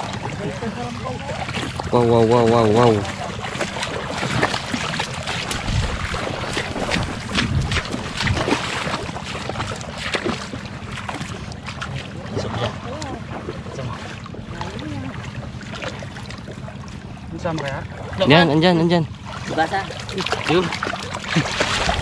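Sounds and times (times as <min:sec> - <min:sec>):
water sloshing and splashing: 0:00.0 - 0:22.0
wind rumbling on microphone: 0:02.9 - 0:10.6, 0:21.6 - 0:22.0.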